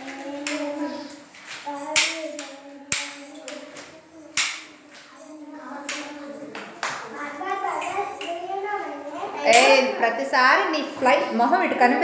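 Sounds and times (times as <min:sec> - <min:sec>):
children singing long notes: 0:00.0 - 0:06.8
sharp hand claps: 0:02.0 - 0:04.7.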